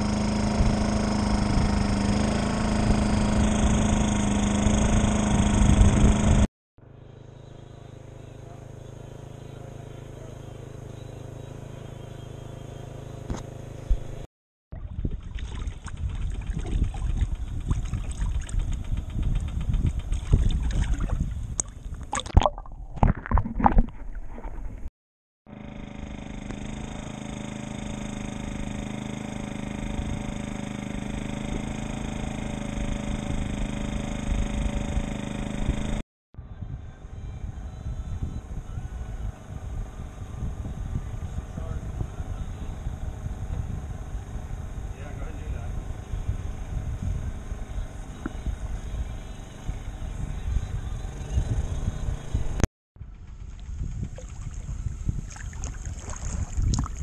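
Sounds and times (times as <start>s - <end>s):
boat motor humming: 0.0s - 24.9s, 25.5s - 57.0s
water splashing: 14.7s - 18.7s, 20.1s - 24.6s, 54.2s - 57.0s
water rushing along hull: 14.8s - 18.8s, 54.0s - 57.0s
underwater gurgling: 20.4s - 24.4s.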